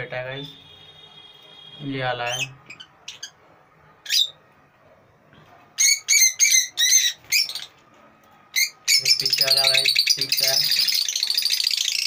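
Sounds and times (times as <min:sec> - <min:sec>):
lovebirds chirping: 0:01.8 - 0:03.4, 0:04.0 - 0:04.4, 0:05.7 - 0:07.8, 0:08.5 - 0:12.0.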